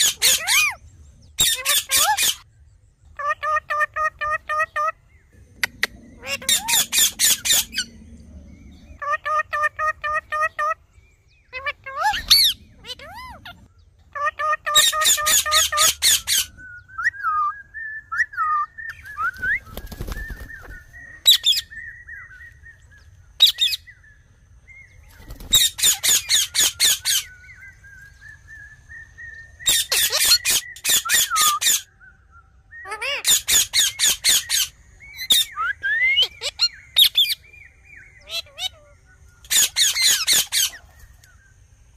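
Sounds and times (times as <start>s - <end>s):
parakeets screeching: 0.0s - 2.5s, 5.7s - 10.8s, 11.5s - 16.6s, 18.5s - 22.0s, 23.4s - 23.9s, 25.0s - 28.1s, 29.6s - 31.9s, 32.8s - 37.5s, 38.1s - 41.2s
repeated bird chirps: 29.0s - 38.7s.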